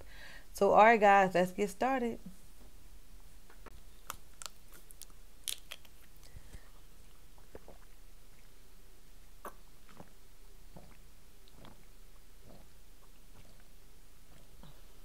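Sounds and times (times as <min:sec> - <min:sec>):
plastic bottle crinkling: 0:03.9 - 0:06.6
person gulping water: 0:06.1 - 0:08.6, 0:09.4 - 0:15.0.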